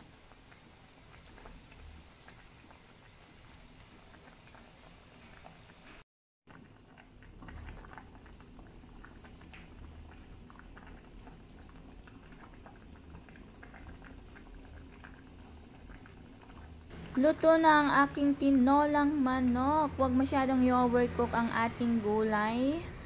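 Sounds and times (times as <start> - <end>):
soup bubbling in a pot: 0.0 - 23.0
low steady hum: 14.8 - 23.0.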